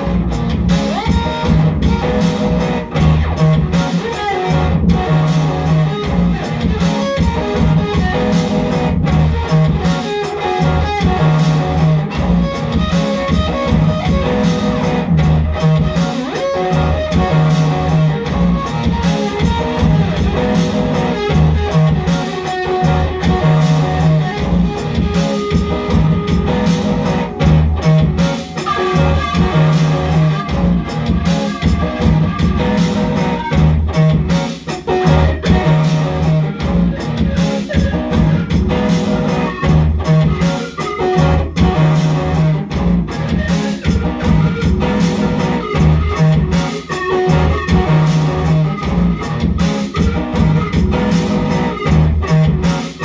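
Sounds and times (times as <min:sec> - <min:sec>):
electric guitar through amplifier: 0:00.0 - 0:53.0
repeating low bass note: 0:13.6 - 0:15.9, 0:25.7 - 0:28.2, 0:28.9 - 0:34.3.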